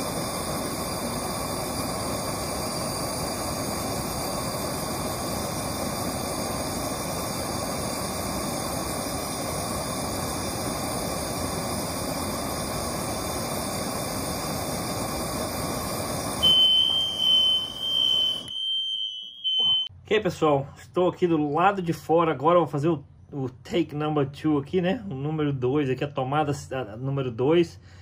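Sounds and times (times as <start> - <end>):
blowtorch flame roaring hiss: 0.0 - 18.5.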